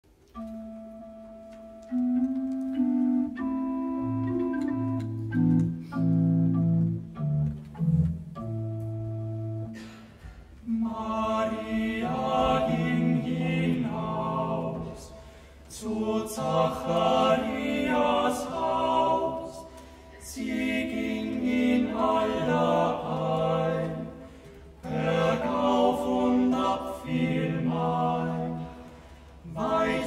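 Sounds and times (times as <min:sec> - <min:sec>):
slow low chords: 0:00.5 - 0:09.8
male vocal quartet singing: 0:10.7 - 0:30.0.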